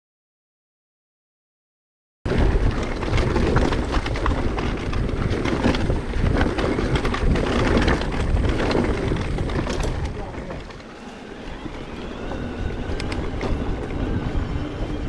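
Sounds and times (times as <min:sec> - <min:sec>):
bike clicks and knocks: 0:02.3 - 0:10.9
steady rumble: 0:02.3 - 0:15.0
wind buffeting microphone: 0:02.3 - 0:15.0.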